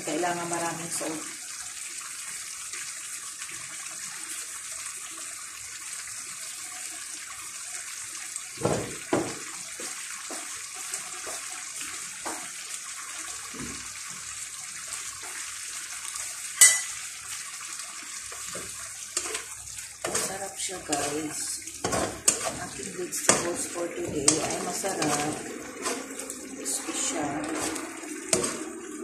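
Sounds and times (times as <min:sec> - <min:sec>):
broth simmering in a pan: 0:00.0 - 0:29.0
knocks on a pan: 0:08.6 - 0:09.5
sharp clink: 0:16.6 - 0:17.0.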